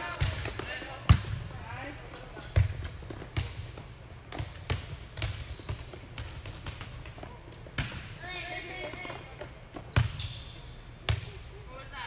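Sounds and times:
shoe squeaks on court: 0.0s - 1.5s, 2.1s - 3.4s, 5.4s - 7.1s, 9.4s - 10.9s
volleyballs smacking and bouncing: 0.0s - 11.6s.

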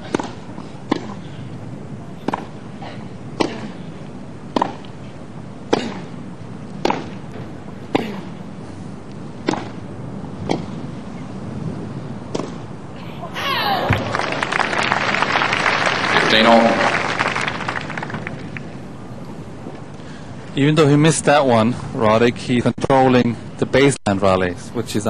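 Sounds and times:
tennis racquets hitting ball: 0.0s - 1.2s, 2.2s - 2.6s, 4.5s - 5.0s, 5.6s - 8.4s, 9.4s - 10.8s, 12.3s - 12.7s.

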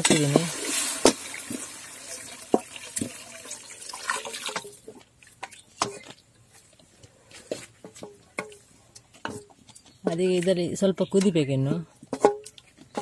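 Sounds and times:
water pouring into a pan: 0.0s - 4.8s.

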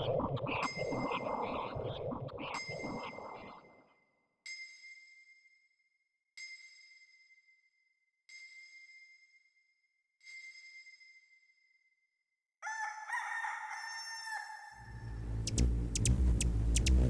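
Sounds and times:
rooster crowing: 12.6s - 15.1s
deep low drone: 15.0s - 17.0s
sharp ticks: 15.3s - 17.0s.

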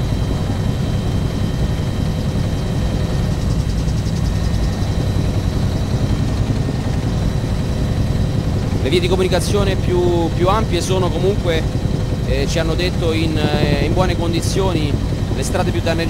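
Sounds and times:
faint high whine: 0.0s - 16.0s
helicopter rotor and engine drone: 0.0s - 16.0s.

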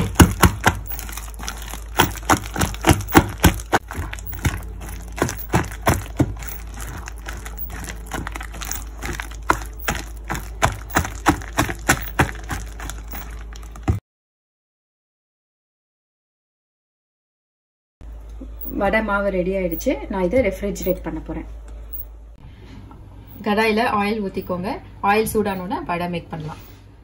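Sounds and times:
wet slaps of batter beating: 0.0s - 14.0s.

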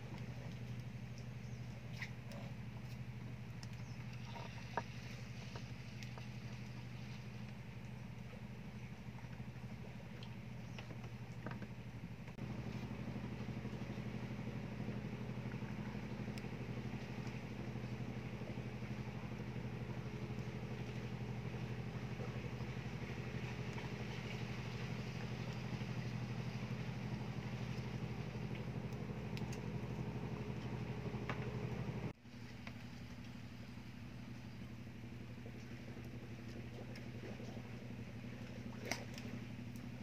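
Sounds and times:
engine running at low revs: 0.0s - 40.0s.

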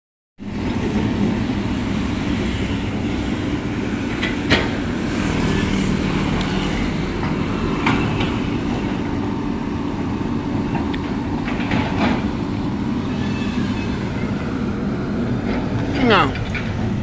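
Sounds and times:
excavator diesel engine running: 0.4s - 17.0s.

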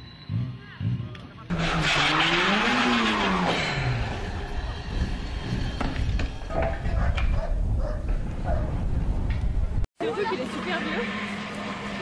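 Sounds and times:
rally car engine revving: 0.2s - 6.5s
tyres screeching: 1.5s - 7.3s.

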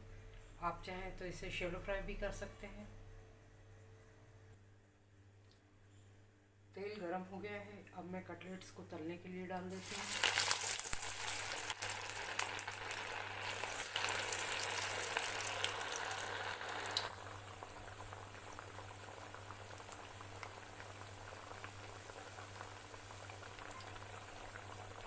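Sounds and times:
cutlets sizzling in hot oil: 9.7s - 25.0s.

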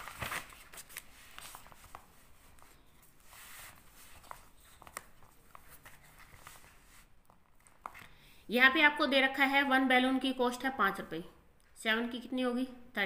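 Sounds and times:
paper rustling: 0.0s - 8.1s.

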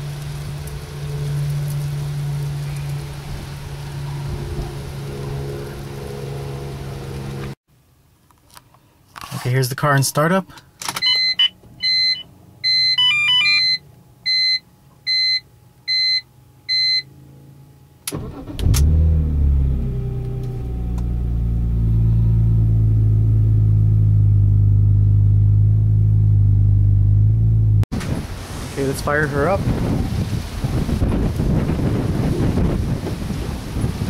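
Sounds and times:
electronic dash chimes: 11.0s - 17.1s
car engine starting and idling: 18.0s - 28.6s.

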